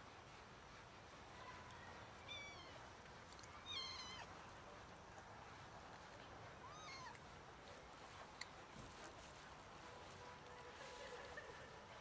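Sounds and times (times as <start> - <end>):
cats meowing: 2.2 - 2.8, 3.6 - 4.3, 6.6 - 7.2.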